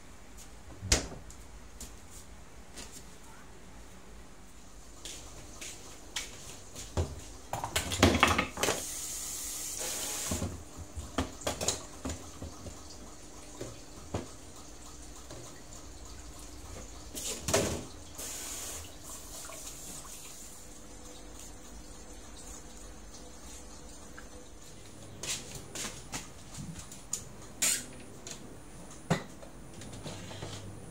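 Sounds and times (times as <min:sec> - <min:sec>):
colander and bowls clattering: 0:07.5 - 0:08.8.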